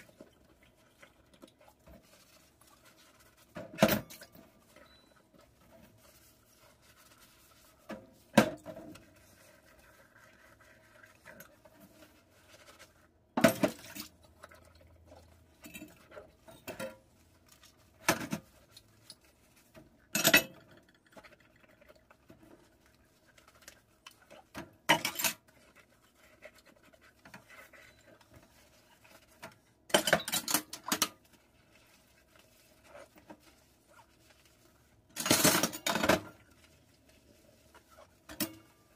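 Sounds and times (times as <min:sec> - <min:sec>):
dishes clinking and knocking: 0:24.9 - 0:25.4.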